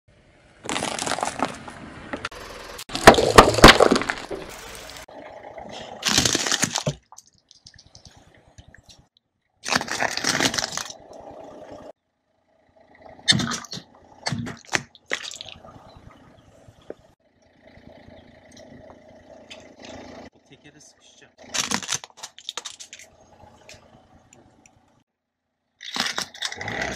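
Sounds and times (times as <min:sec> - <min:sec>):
tyre crushing brittle objects: 0:00.6 - 0:01.7, 0:02.9 - 0:05.1, 0:06.0 - 0:08.1, 0:09.6 - 0:11.0, 0:21.5 - 0:23.1, 0:25.8 - 0:26.9.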